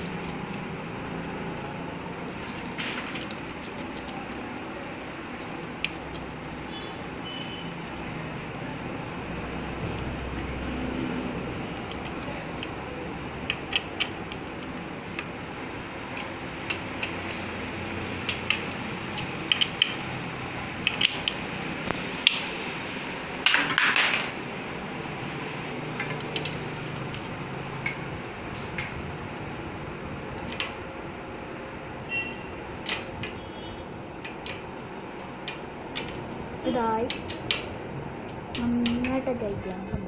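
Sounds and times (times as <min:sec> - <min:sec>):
tools and metal parts clinking: 0:00.0 - 0:00.7, 0:10.3 - 0:10.8, 0:23.4 - 0:24.5.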